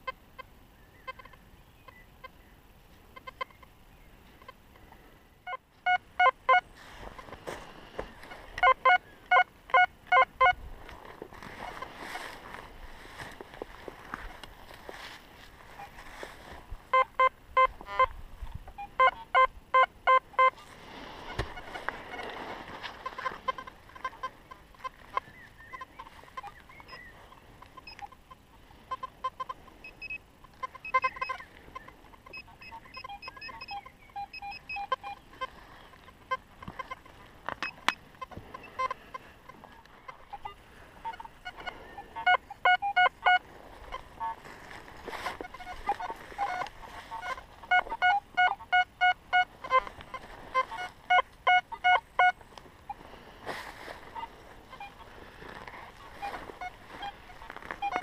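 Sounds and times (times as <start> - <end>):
metal detector beeps: 5.4 - 6.7, 8.2 - 10.6, 15.7 - 16.0, 16.9 - 53.1, 53.7 - 58.0.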